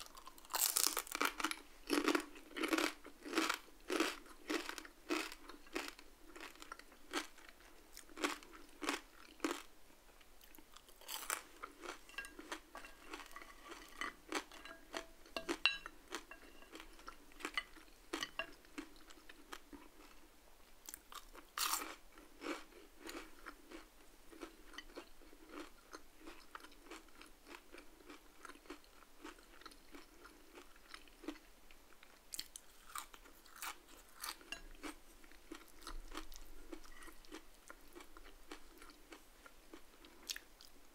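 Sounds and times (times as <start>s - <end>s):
crunchy chewing of fries: 0.0s - 40.9s.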